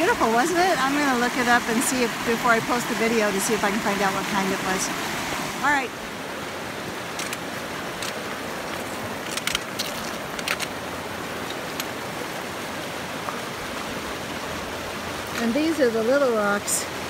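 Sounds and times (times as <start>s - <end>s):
creek water over rocks: 0.0s - 17.0s
stones knocking underfoot: 9.2s - 10.7s.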